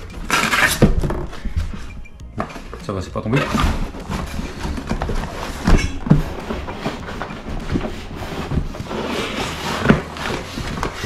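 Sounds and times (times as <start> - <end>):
cardboard tray scraping: 2.5 - 11.0.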